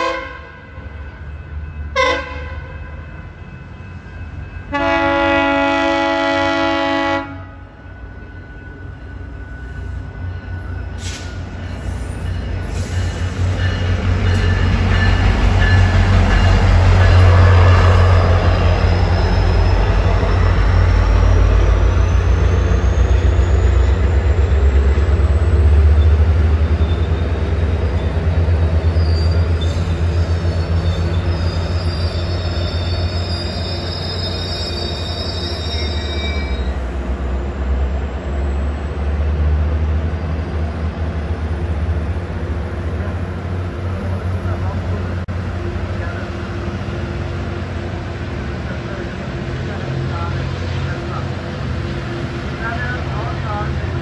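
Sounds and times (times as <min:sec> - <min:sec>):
train rumbling past: 0:00.0 - 0:54.0
wheel and brake squeal: 0:17.8 - 0:24.4, 0:25.0 - 0:28.2, 0:28.8 - 0:36.9.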